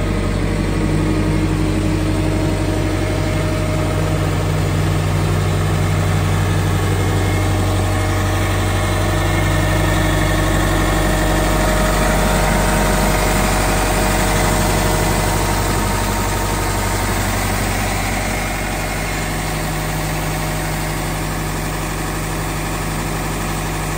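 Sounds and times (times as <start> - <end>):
diesel engine idling: 0.0 - 23.9.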